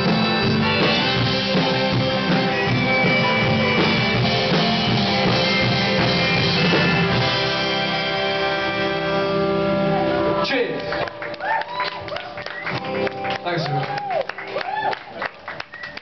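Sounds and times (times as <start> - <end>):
guitar chord ringing: 0.0 - 11.0
live rock band playing: 0.0 - 16.0.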